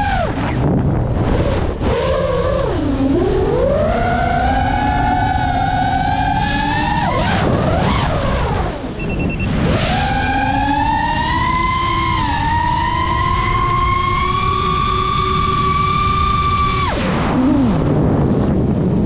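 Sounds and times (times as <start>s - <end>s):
wind rushing: 0.0s - 5.4s, 15.8s - 19.0s
drone motors whining: 0.0s - 18.7s.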